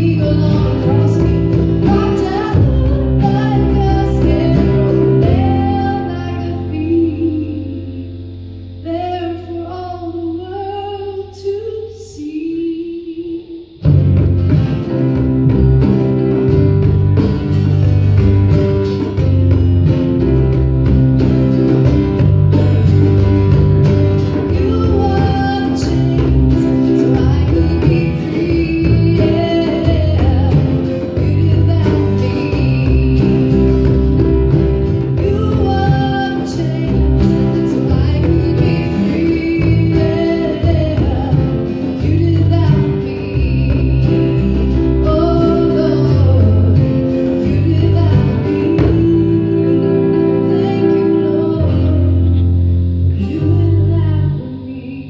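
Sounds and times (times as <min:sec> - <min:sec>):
hand drum beats: 0:00.0 - 0:06.4, 0:13.8 - 0:49.8
woman singing: 0:00.0 - 0:08.2, 0:08.8 - 0:13.9, 0:21.5 - 0:55.0
electric bass: 0:00.0 - 0:12.1, 0:13.6 - 0:55.0
acoustic guitar: 0:00.0 - 0:55.0.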